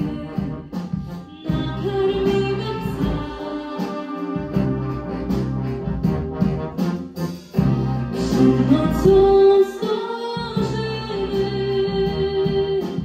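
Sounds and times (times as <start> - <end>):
woman singing a ballad: 0.0 - 4.5, 8.2 - 13.0
wind band playing: 0.0 - 9.7.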